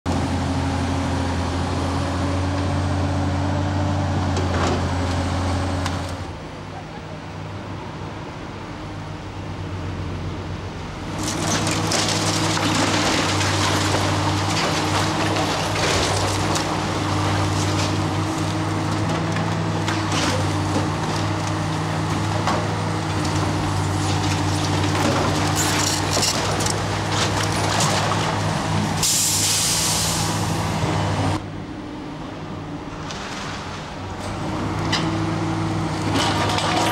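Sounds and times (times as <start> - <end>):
excavator diesel engine: 0.1 - 36.9
building crunching and cracking: 11.1 - 28.8
falling masonry: 11.1 - 31.4, 32.9 - 36.9.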